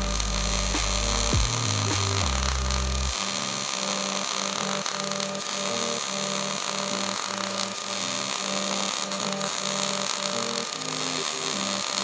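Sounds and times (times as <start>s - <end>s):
background music with bass line: 0.0s - 3.3s
welding arc crackling: 0.0s - 12.0s.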